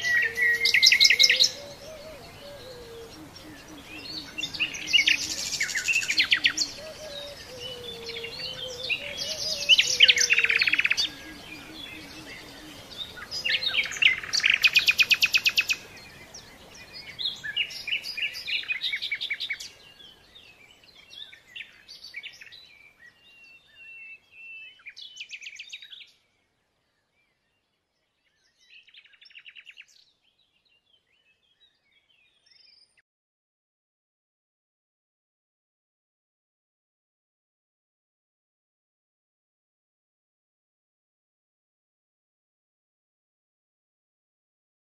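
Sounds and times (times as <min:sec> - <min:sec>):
songbirds trilling and chirping: 0:00.0 - 0:33.0.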